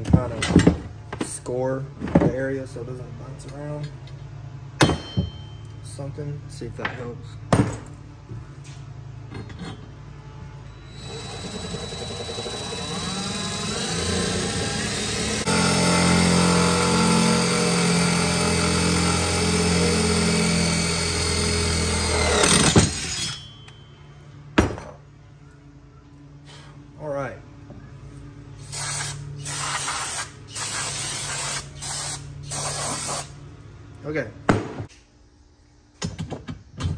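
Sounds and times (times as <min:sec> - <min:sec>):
cordless drill boring metal: 0:10.7 - 0:23.5.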